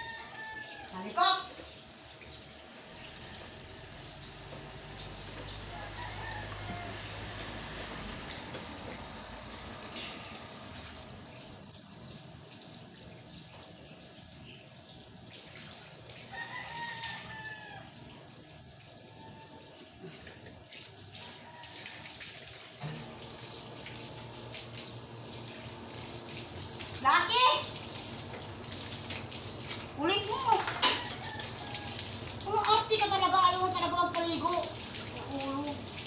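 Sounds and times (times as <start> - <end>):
rooster crowing: 0.0 - 1.2, 5.5 - 7.8, 16.3 - 18.0, 21.2 - 22.2, 30.7 - 32.4
running water: 0.0 - 36.0.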